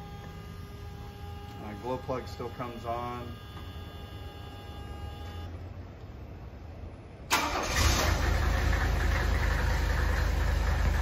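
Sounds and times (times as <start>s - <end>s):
low steady hum: 0.0s - 7.4s
diesel engine cranking and idling: 5.2s - 11.0s.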